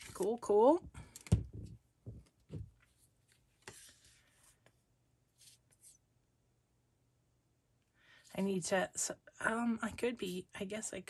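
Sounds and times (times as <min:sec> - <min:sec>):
paper rustling: 0:02.8 - 0:04.7.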